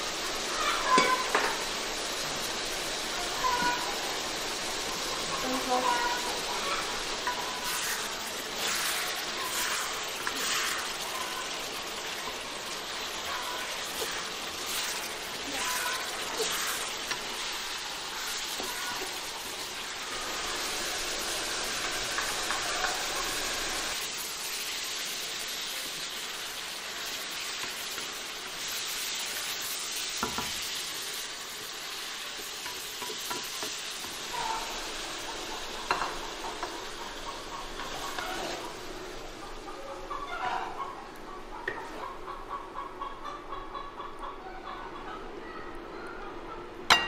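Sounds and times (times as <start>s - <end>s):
food sizzling in a pan: 0.0s - 42.0s
wooden spatula scraping pan: 7.2s - 11.0s, 37.8s - 38.7s.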